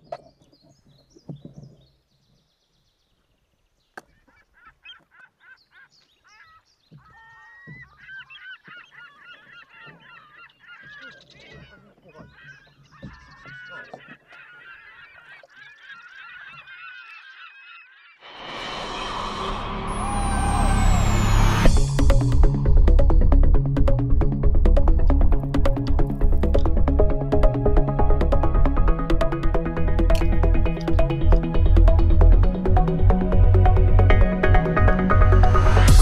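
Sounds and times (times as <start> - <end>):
flock of geese calling: 4.0 - 18.6.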